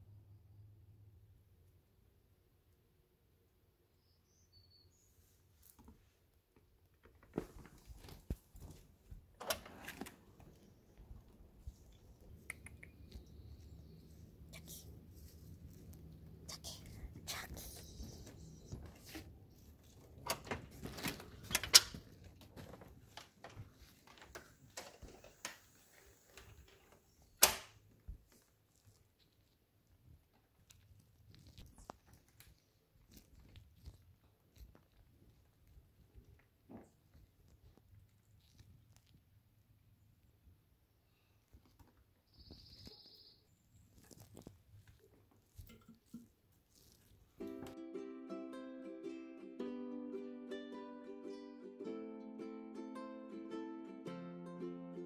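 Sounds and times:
faint high chirps: 3.9s - 5.2s, 42.3s - 43.6s
sharp clicks and taps: 12.3s - 13.7s.

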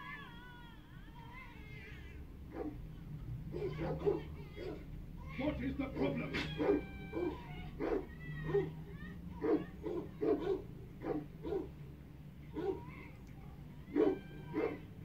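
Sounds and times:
dog barking and yelping: 2.5s - 2.8s, 3.5s - 11.8s, 12.5s - 13.0s, 13.8s - 15.0s
dog whining: 6.0s - 8.8s, 12.5s - 12.9s, 13.8s - 15.0s.

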